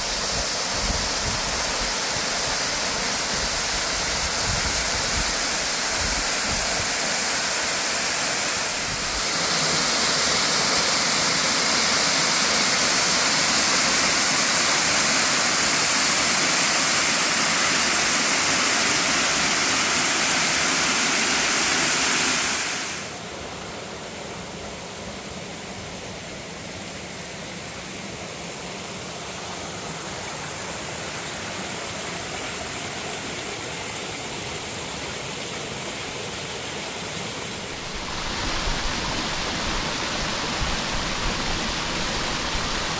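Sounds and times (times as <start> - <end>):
waterfall crashing onto rock: 0.0 - 23.2, 37.0 - 42.9
mountain stream over boulders: 0.0 - 42.9.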